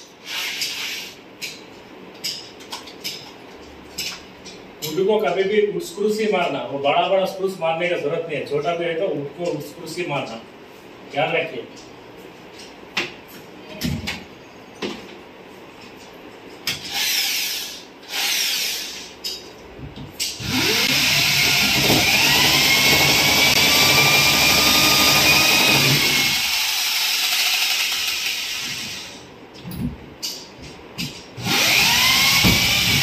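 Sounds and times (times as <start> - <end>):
electric drill boring into wood: 16.9 - 19.0, 20.4 - 29.2, 31.4 - 33.0.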